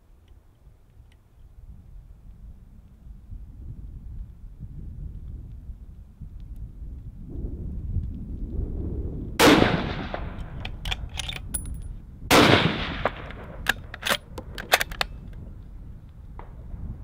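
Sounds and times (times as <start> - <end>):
wind rumbling on microphone: 0.0 - 17.0
rifle shots with echo: 9.4 - 10.8, 12.3 - 15.0
rifle bolt metallic clicks: 10.1 - 12.0, 13.0 - 15.4.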